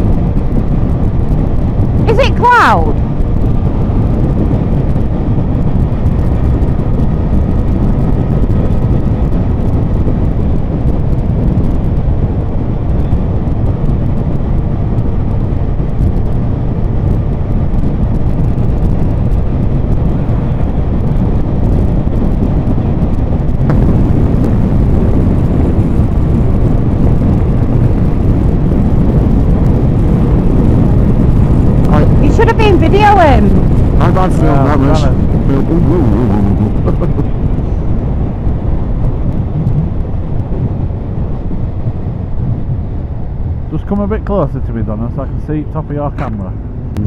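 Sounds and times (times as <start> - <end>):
wind buffeting microphone: 0.0 - 47.0
motorcycle engine: 3.0 - 43.7.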